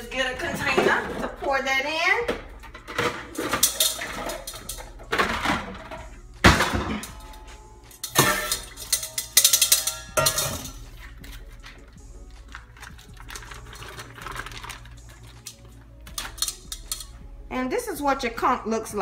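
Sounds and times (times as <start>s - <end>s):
metal bowls clanking and ringing: 2.7s - 6.0s, 6.6s - 11.2s.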